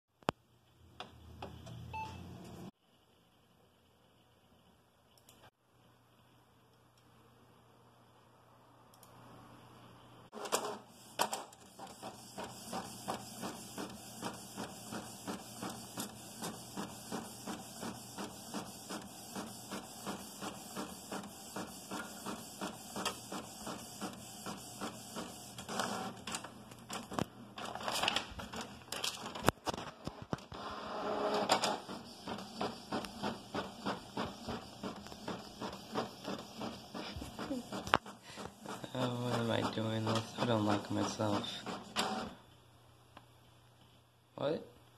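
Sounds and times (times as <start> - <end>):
printer paper feed noise: 10.3 - 42.4.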